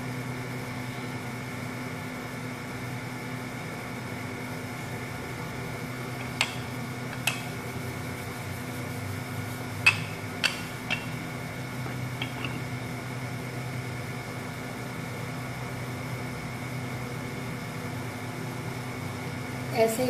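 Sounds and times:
steady hum: 0.0s - 20.0s
rolling pin knocking on marble: 9.9s - 11.3s.

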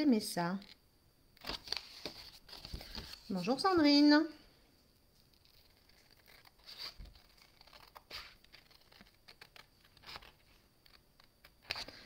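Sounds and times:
paper handling: 1.4s - 3.8s, 5.2s - 12.0s.

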